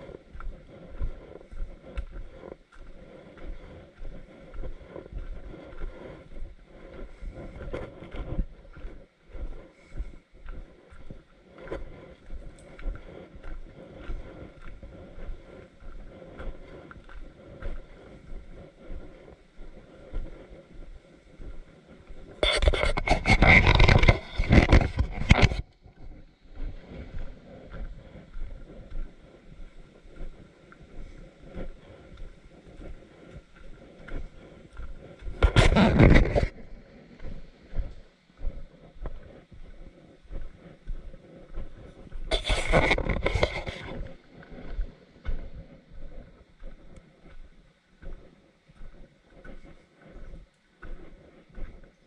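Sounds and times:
footsteps on dirt trail: 0.0s - 52.0s
wind on microphone: 0.0s - 52.0s
scraping rustle at microphone: 22.3s - 25.8s, 34.1s - 38.0s, 41.5s - 46.4s.

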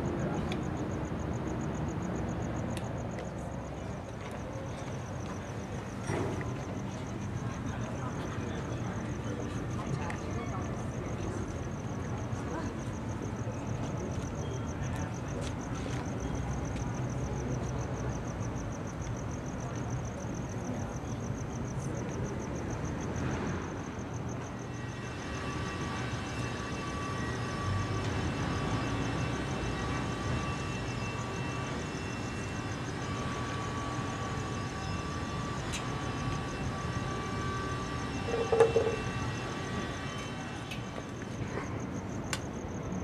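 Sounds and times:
crickets trilling: 0.0s - 43.0s
distant traffic rumble: 25.6s - 42.5s.

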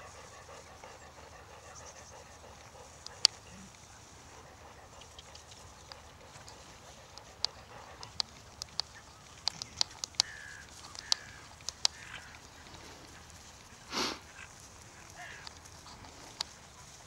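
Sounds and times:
faint bird calls: 0.0s - 17.0s
horse breathy snort: 13.8s - 14.4s.

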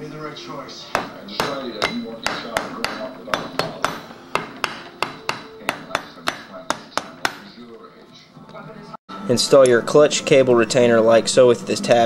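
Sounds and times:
rubber mallet tapping metal: 1.0s - 7.5s.

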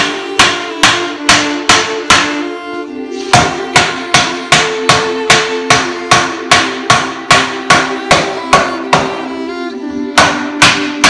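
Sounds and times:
hammer blows on wood: 0.0s - 2.5s, 3.2s - 9.3s, 10.1s - 11.0s.

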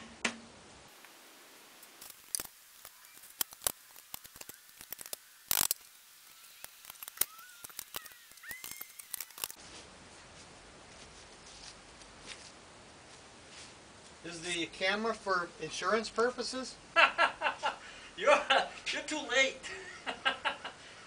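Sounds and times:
faint short squeaks: 7.2s - 9.5s.

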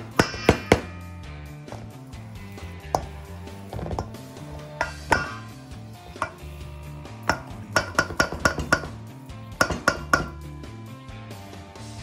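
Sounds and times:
background music: 0.0s - 12.0s
utensil knocking on metal bowl: 2.9s - 3.2s, 3.8s - 5.5s, 6.1s - 6.6s, 7.2s - 10.5s.

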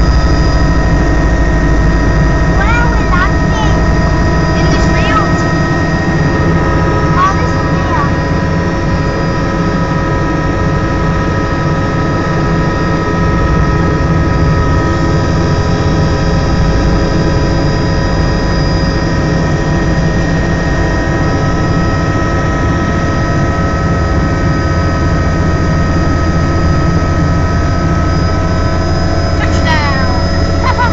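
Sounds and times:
helicopter engine and rotor: 0.0s - 30.9s.

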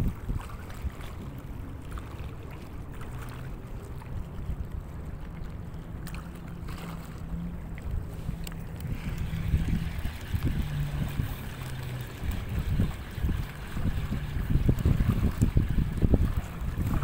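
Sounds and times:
boat motor humming: 0.0s - 17.0s
water noise: 0.0s - 17.0s
wind: 0.0s - 17.0s.

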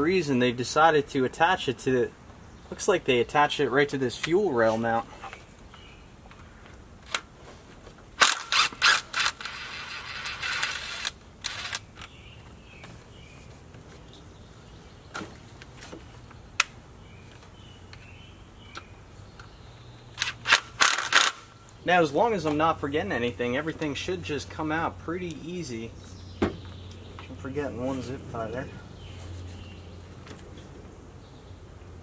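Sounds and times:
cordless drill running: 8.2s - 11.8s.

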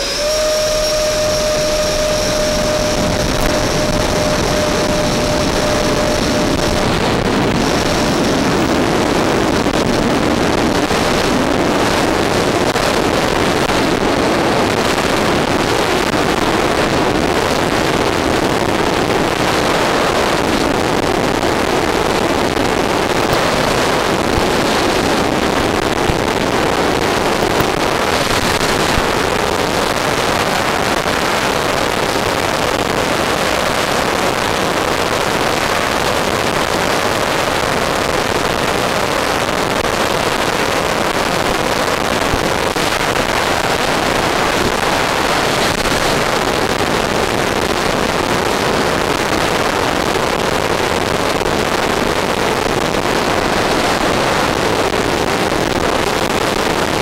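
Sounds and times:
motor noise rushing: 0.0s - 17.2s, 19.3s - 31.6s
wind on microphone: 0.0s - 57.0s.

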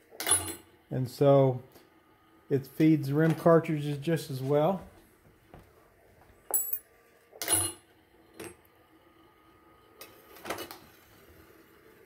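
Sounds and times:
faint machine hum: 0.0s - 12.0s
brass cases clinking: 6.5s - 6.8s.

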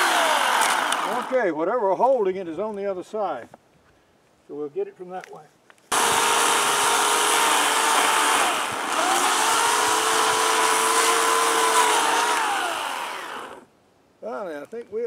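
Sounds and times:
electric chainsaw cutting log: 0.0s - 1.4s, 5.9s - 13.7s.

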